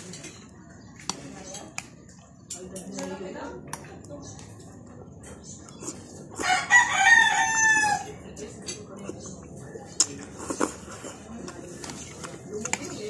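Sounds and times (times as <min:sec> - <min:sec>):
cutlery clicking against bowl: 0:02.5 - 0:03.8
rooster crowing: 0:06.4 - 0:08.2.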